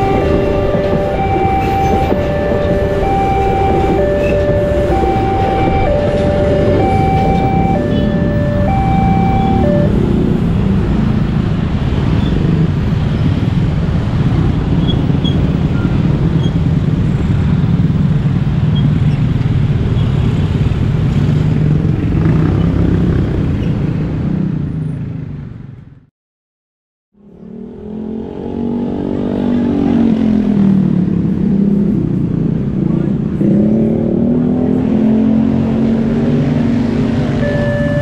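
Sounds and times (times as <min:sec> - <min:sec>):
level-crossing warning alarm: 0:00.0 - 0:10.4, 0:37.3 - 0:38.0
motorcycle and car engines: 0:00.0 - 0:26.0, 0:27.2 - 0:38.0.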